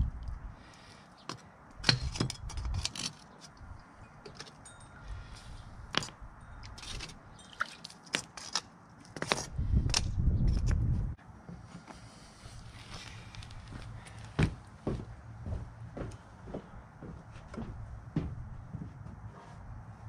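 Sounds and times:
metallic clicks and tinks: 3.8s - 7.9s.

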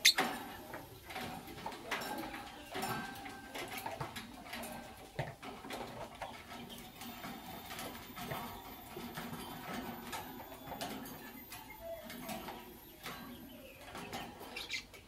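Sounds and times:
bird chirps: 0.0s - 0.3s
taps and scratches on wire bars: 0.0s - 15.0s.

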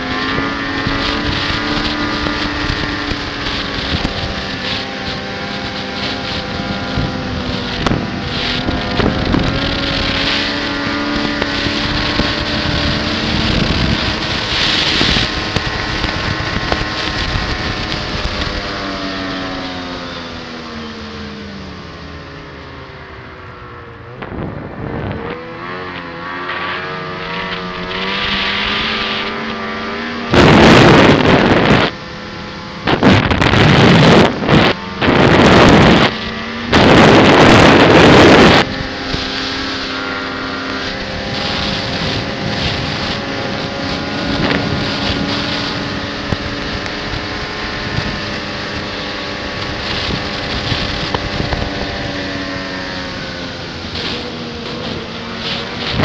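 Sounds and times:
snowmobile engine running: 0.0s - 56.0s
wind noise on microphone: 0.0s - 56.0s.

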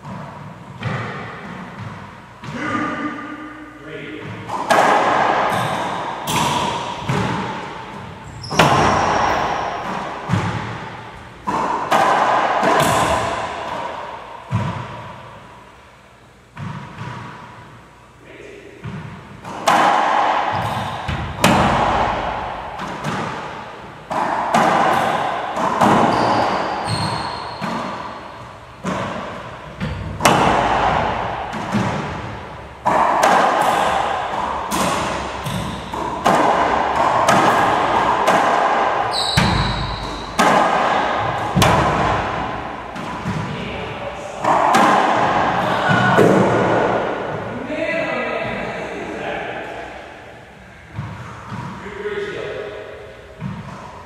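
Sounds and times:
racquetball smacks echoing: 0.0s - 3.1s, 4.2s - 15.6s, 16.5s - 17.6s, 18.8s - 47.5s, 53.3s - 54.0s
short high squeaks: 26.0s - 27.8s, 39.1s - 40.4s.

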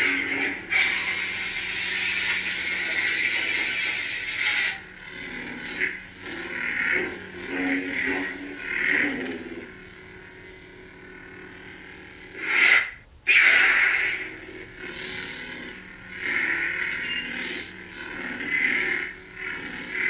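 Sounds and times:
lightsaber hum: 0.0s - 20.0s.

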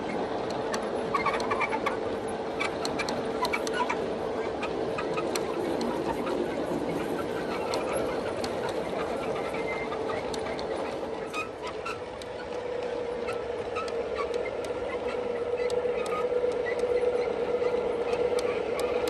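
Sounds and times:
model train cars rolling: 0.0s - 19.0s
wheels clicking over rail joints: 0.0s - 19.0s.

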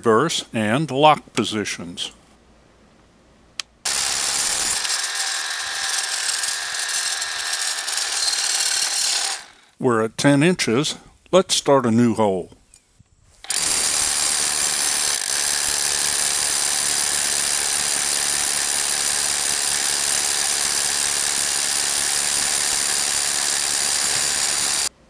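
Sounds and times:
rotary hammer drilling into stone: 3.8s - 9.7s, 13.4s - 24.9s.

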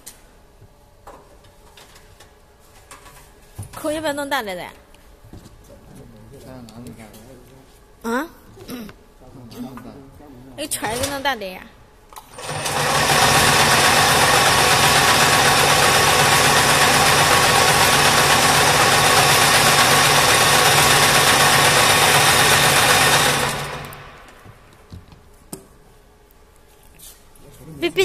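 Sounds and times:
braiding machine running: 12.2s - 24.7s.

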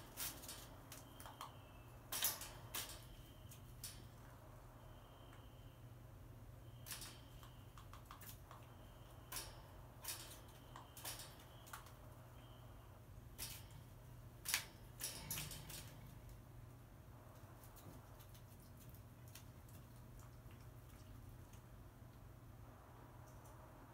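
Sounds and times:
crow clicking and tapping on cage: 0.0s - 4.3s, 6.8s - 12.2s, 13.3s - 16.4s, 17.4s - 21.7s
low steady hum: 0.0s - 23.9s.

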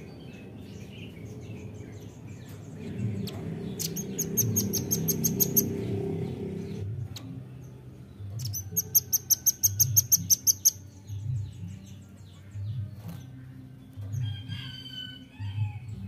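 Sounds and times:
low background rumble: 0.0s - 8.6s.

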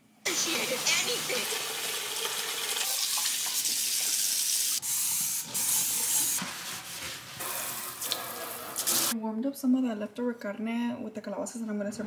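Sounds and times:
faucet water running into sink: 0.3s - 9.2s.

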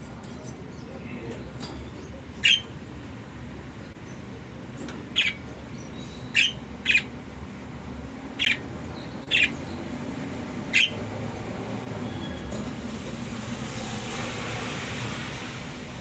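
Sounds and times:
budgerigar chirping: 2.4s - 2.8s, 5.1s - 7.2s, 8.3s - 9.8s, 10.7s - 11.0s.

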